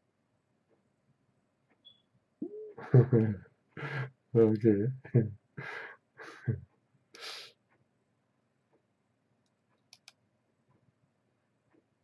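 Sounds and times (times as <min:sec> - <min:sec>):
brief hiss: 0:07.2 - 0:07.5
faint computer mouse clicks: 0:09.4 - 0:10.2.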